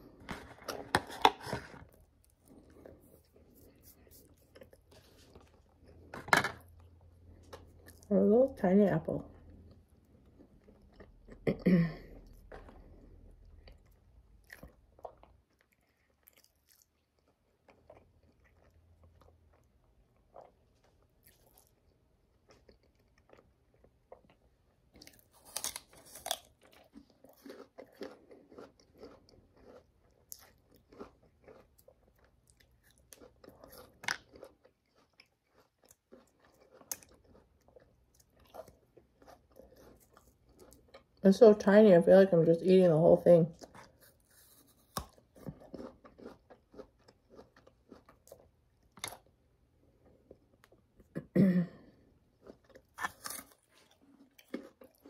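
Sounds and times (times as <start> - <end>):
wet chewing: 12.2 - 41.2, 52.4 - 55.0
apple crunching: 25.0 - 40.9, 43.6 - 49.3, 52.4 - 55.0.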